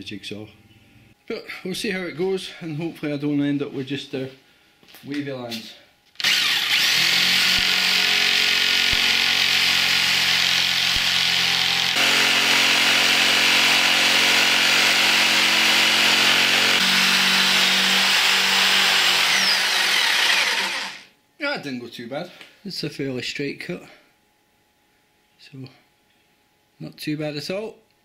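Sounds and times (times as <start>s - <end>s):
electric jigsaw cutting wood: 6.2s - 21.1s.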